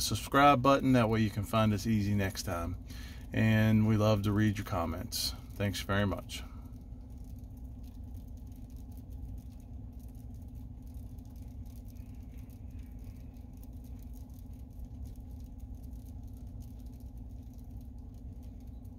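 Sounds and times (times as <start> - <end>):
low vehicle cabin hum: 0.0 - 18.9
faint ticking: 0.7 - 18.9.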